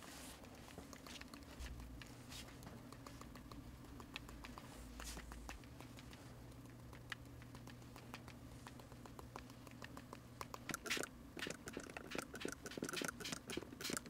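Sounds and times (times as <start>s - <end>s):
scratchy paint flicks: 0.0s - 14.0s
paintbrush tapping: 0.6s - 14.0s.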